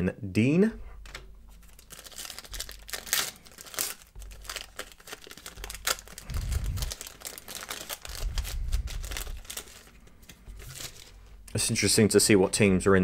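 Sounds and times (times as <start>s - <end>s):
foil wrapper tearing and crinkling: 1.6s - 11.2s.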